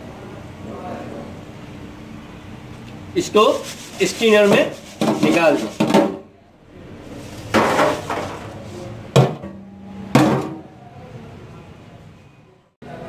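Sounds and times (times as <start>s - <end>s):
fry basket clanking on metal tray: 4.4s - 6.2s, 7.5s - 8.6s.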